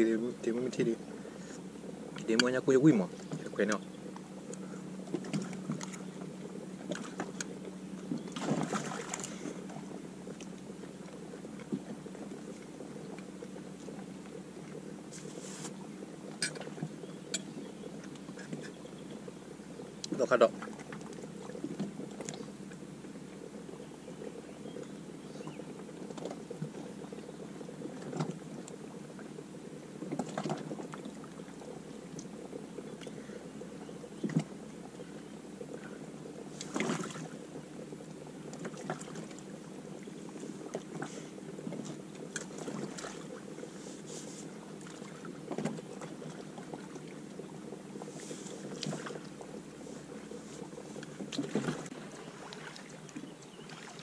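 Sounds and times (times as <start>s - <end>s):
steady low hum: 0.0s - 54.0s
water lapping around kayak: 0.0s - 54.0s.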